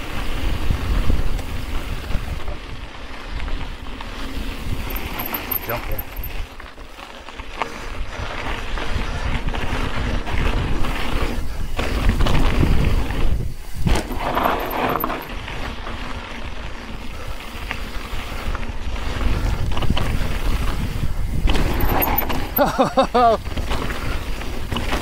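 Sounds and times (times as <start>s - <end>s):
wind buffeting microphone: 0.3s - 3.8s, 7.9s - 14.4s, 18.3s - 22.6s
tyres rumbling on loose dirt: 1.8s - 25.0s
bike rattling and knocking: 4.8s - 6.4s, 13.9s - 15.4s, 21.3s - 24.0s.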